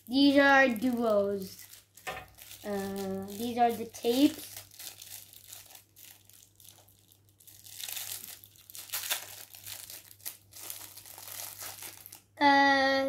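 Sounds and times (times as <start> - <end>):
plastic wrapping crinkling: 0.0 - 12.4.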